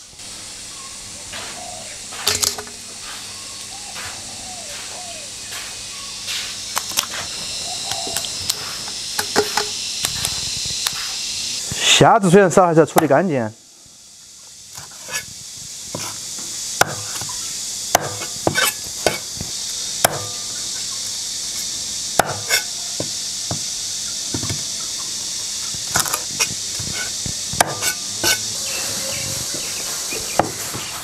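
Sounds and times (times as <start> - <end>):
steady high hiss: 0.0 - 31.0
cleaver chopping on wooden board: 16.8 - 17.3, 17.9 - 19.3, 20.0 - 20.4, 22.2 - 23.7, 25.7 - 28.4.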